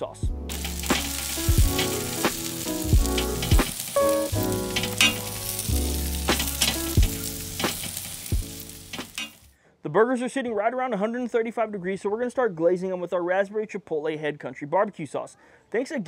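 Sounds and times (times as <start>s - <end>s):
background music with bass and drums: 0.0s - 9.3s
vegetables sizzling in oil: 0.5s - 9.6s.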